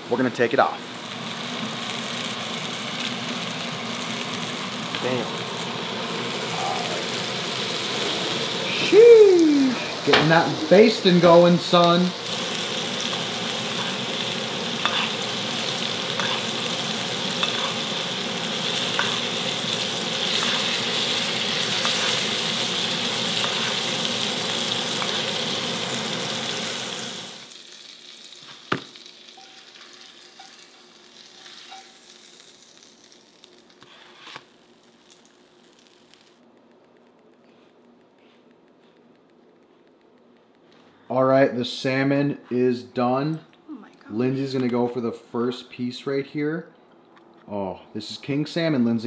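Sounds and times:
fish sizzling in a frying pan: 0.9 - 36.4.

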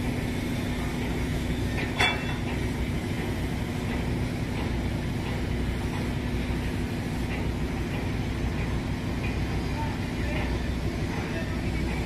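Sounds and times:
short clink: 2.0 - 2.5.

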